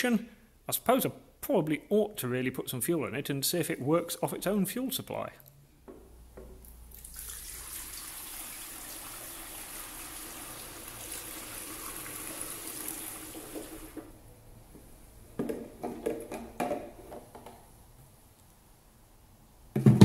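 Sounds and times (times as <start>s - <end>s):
petrol pouring through a funnel: 6.9s - 14.1s.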